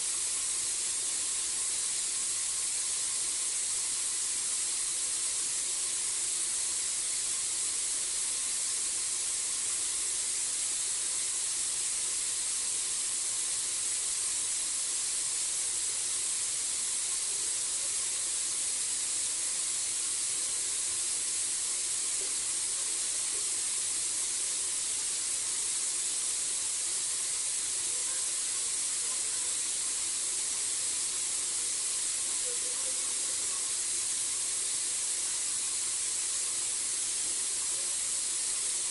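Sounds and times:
steady high-pitched hiss: 0:00.0 - 0:38.9.

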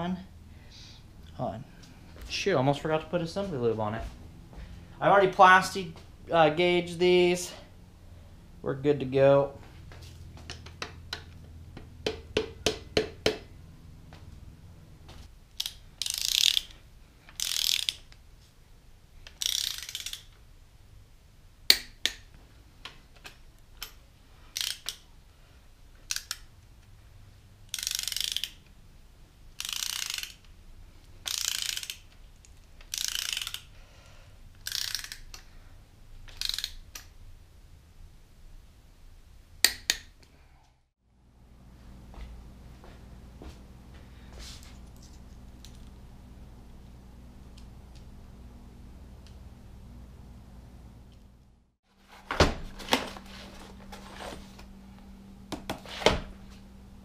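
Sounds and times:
ratchet wrench ratcheting: 0:15.5 - 0:18.1, 0:19.3 - 0:20.3, 0:23.8 - 0:25.0, 0:26.1 - 0:26.5, 0:27.7 - 0:28.7, 0:29.5 - 0:30.6, 0:31.2 - 0:33.7, 0:34.6 - 0:35.5, 0:36.3 - 0:37.1.

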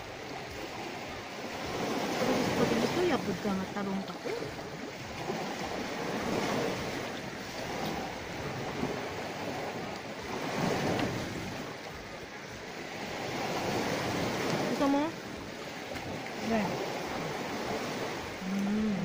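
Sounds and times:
sea waves washing ashore: 0:00.0 - 0:19.0.

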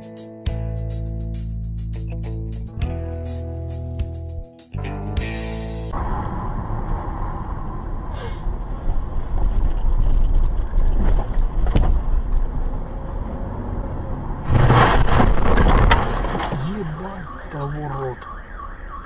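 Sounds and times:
car engine rumble: 0:05.3 - 0:18.6.

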